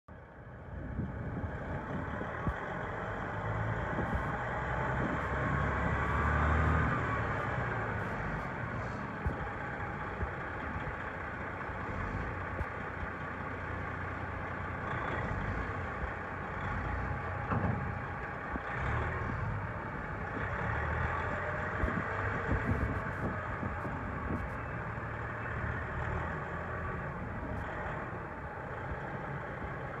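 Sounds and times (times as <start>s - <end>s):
diesel engine idling: 0.1s - 30.0s.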